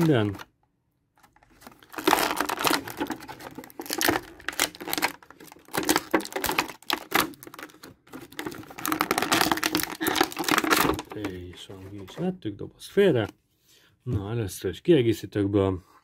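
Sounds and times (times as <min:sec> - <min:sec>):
plastic packaging crinkling: 0:00.0 - 0:00.5, 0:01.2 - 0:12.2.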